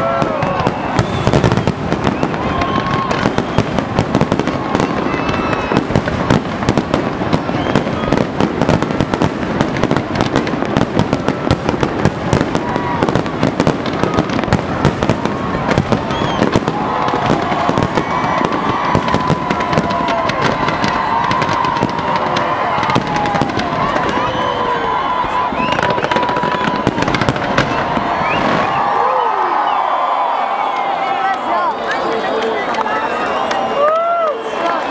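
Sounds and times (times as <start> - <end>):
fireworks bursting and crackling: 0.0 - 34.9.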